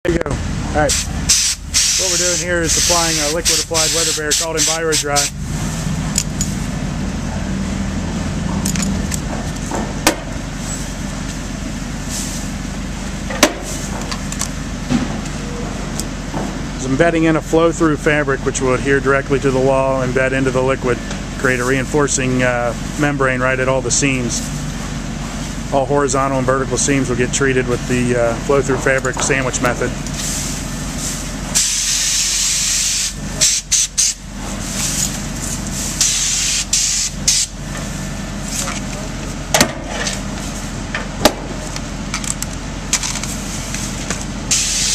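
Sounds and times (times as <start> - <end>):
engine humming: 0.0 - 44.9
spray gun hissing: 0.9 - 5.3, 44.5 - 44.9.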